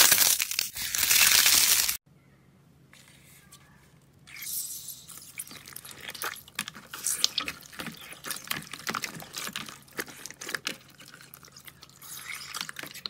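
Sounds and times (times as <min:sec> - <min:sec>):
slime squishing: 0:04.2 - 0:13.0.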